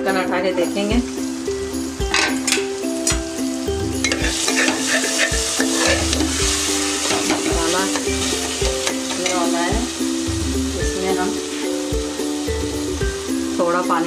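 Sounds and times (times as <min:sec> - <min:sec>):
background music with steady beat: 0:00.0 - 0:14.0
masala sizzling in a pot: 0:00.0 - 0:14.0
metal spoon scraping a pot: 0:04.0 - 0:09.4.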